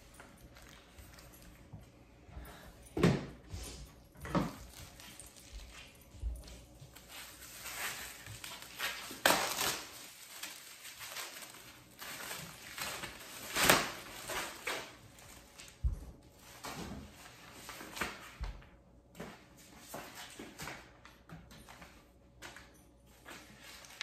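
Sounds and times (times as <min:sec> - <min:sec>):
plastic packaging crinkling: 0:07.0 - 0:15.8.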